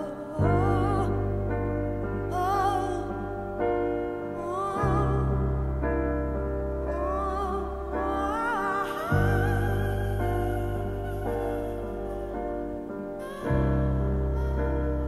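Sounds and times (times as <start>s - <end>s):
wordless female vocal: 0.0s - 6.1s, 6.8s - 15.0s
slow piano chords: 0.0s - 15.0s.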